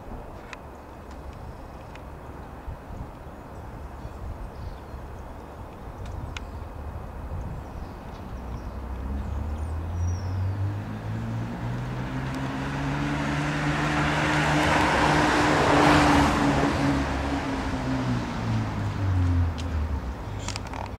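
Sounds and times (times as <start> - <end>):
vehicle passing with tyre noise: 8.2 - 20.9.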